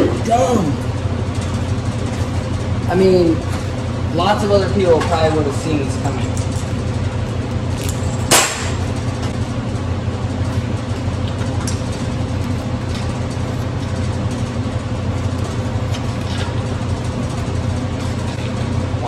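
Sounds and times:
motor humming: 0.0s - 19.0s.

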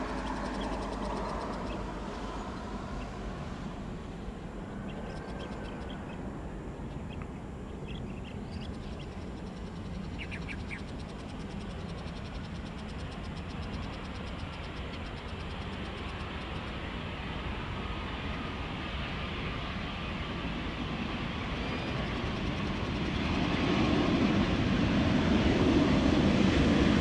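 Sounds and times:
jet engines rumbling: 0.0s - 27.0s
bird-like chirps: 6.9s - 16.3s
fast ticking chirp: 7.9s - 16.7s.

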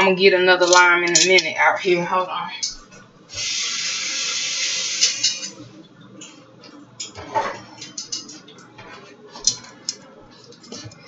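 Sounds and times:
water running from a tap: 3.3s - 5.6s.

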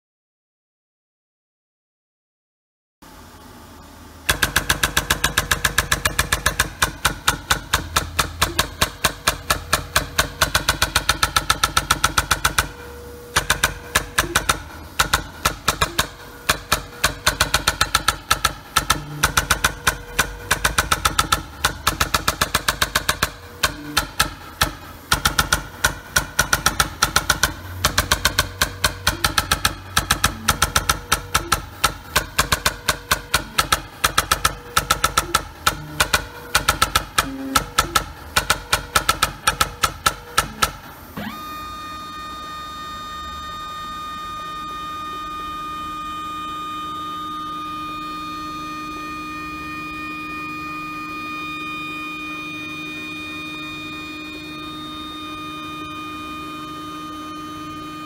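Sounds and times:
dot peen marker tapping metal: 4.3s - 40.8s.

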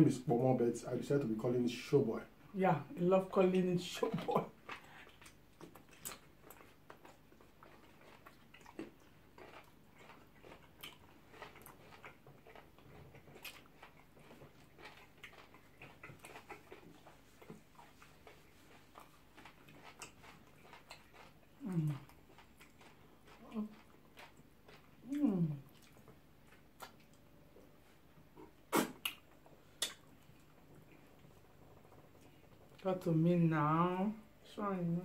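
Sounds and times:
chewing: 4.0s - 33.0s
wet mouth clicks: 25.8s - 27.2s, 28.4s - 30.2s.

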